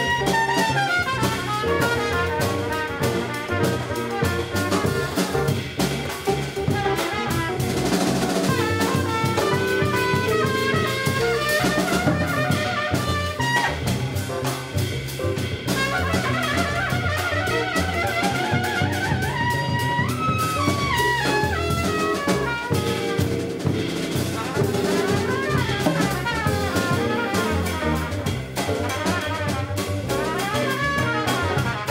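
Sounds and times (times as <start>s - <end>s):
trumpet playing melodic runs: 0.0s - 5.6s, 6.7s - 14.0s, 15.7s - 31.9s
drum kit with cymbals: 0.0s - 31.9s
upright bass: 0.0s - 31.9s.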